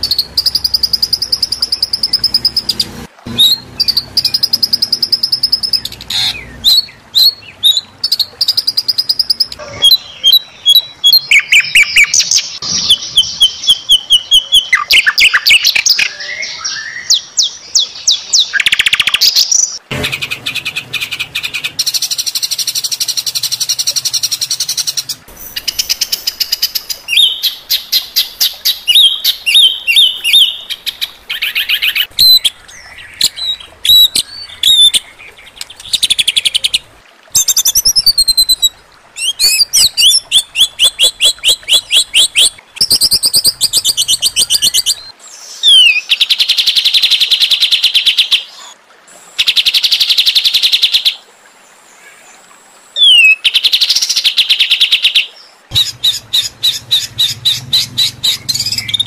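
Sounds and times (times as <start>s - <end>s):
harsh songbird calls: 0.0s - 46.9s, 53.0s - 59.0s.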